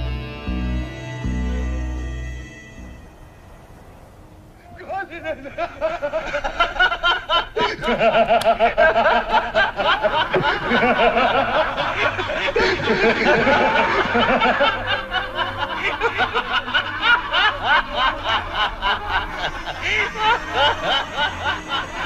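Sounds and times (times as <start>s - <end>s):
men laughing: 4.6s - 22.0s.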